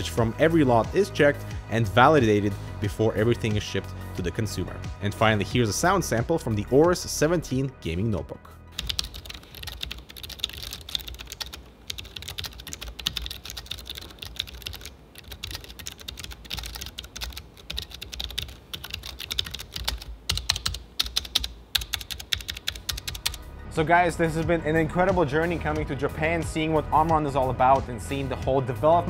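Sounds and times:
fast typing key clicks: 0:08.8 - 0:23.4.

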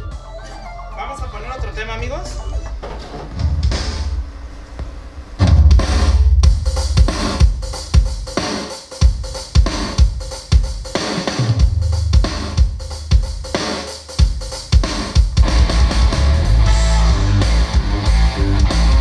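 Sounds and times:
deep sustained bass notes: 0:00.0 - 0:07.4, 0:15.4 - 0:19.0
heavy kick drum: 0:01.6 - 0:19.0.

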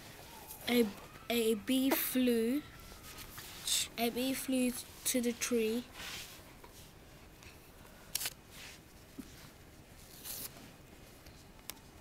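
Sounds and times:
fabric rustling on carpet: 0:05.9 - 0:07.0.

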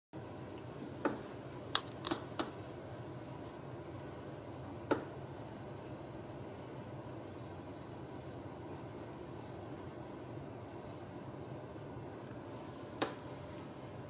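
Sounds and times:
steady low hiss: 0:00.2 - 0:14.0.

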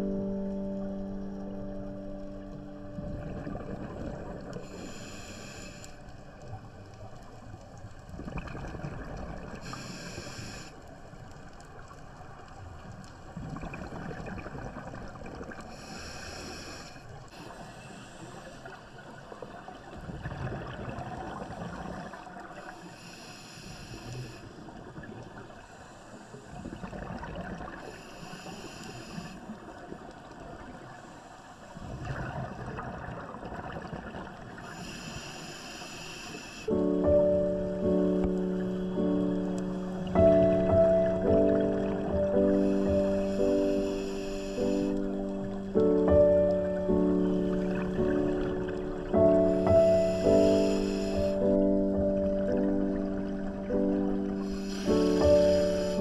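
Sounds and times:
exhaled bubbles rumbling: 0:00.0 - 0:09.8, 0:12.6 - 0:15.8, 0:19.2 - 0:22.5, 0:26.6 - 0:27.8, 0:31.8 - 0:34.6, 0:36.7 - 0:43.9, 0:44.8 - 0:56.0
regulator air hiss: 0:04.6 - 0:06.1, 0:09.6 - 0:11.0, 0:15.8 - 0:18.6, 0:22.7 - 0:24.6, 0:27.9 - 0:29.4, 0:34.7 - 0:36.8, 0:42.6 - 0:45.1, 0:49.6 - 0:51.5, 0:54.4 - 0:56.0.

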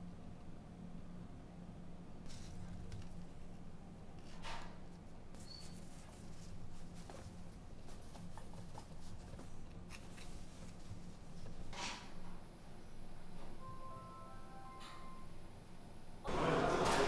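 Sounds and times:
soft rustling: 0:04.2 - 0:11.7.

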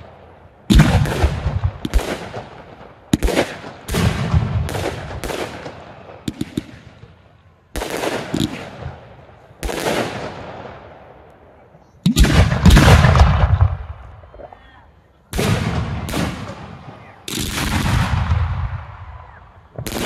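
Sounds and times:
fireworks booming: 0:00.0 - 0:11.0, 0:12.0 - 0:14.5, 0:15.3 - 0:20.0
fireworks crackling: 0:15.3 - 0:20.0.

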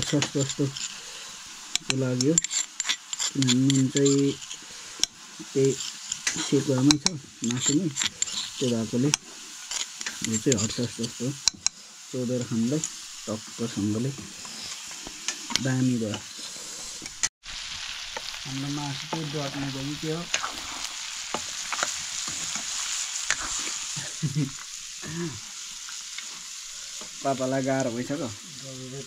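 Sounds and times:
metal ladle scraping a pan: 0:00.0 - 0:17.3, 0:20.2 - 0:24.0
pork sizzling in a wok: 0:00.0 - 0:29.0.

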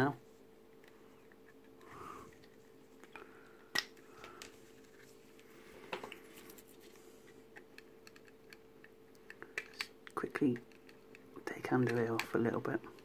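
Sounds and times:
faint steady hum: 0:00.0 - 0:13.0
plastic parts clicking and tapping: 0:07.5 - 0:13.0.

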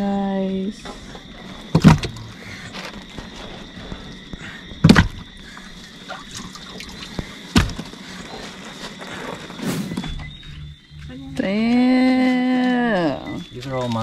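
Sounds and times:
fish thunking in a box: 0:01.7 - 0:02.2, 0:04.8 - 0:05.3, 0:07.5 - 0:07.9.

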